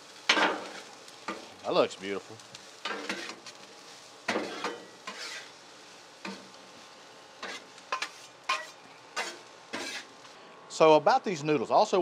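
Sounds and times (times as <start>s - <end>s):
vegetables sizzling: 0.0s - 11.2s
metal spatulas scraping griddle: 2.8s - 3.5s, 4.3s - 5.6s, 7.4s - 10.3s.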